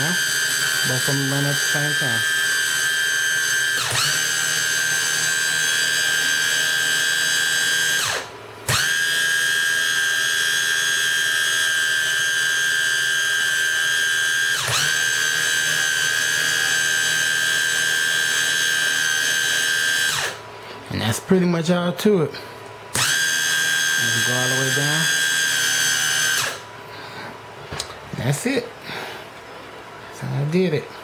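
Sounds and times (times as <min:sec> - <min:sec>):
electric motors whining: 0:00.0 - 0:21.4, 0:22.6 - 0:30.1.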